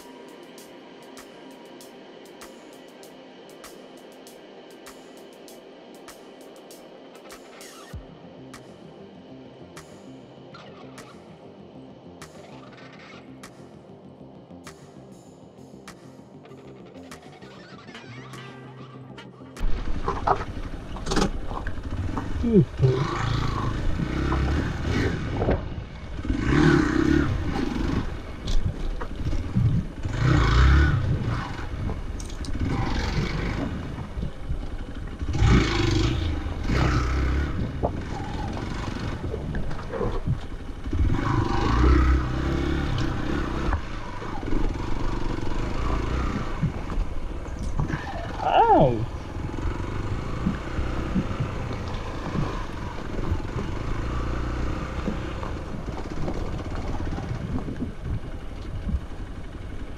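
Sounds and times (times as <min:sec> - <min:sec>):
motorcycle engine revving: 0:19.6 - 0:59.9.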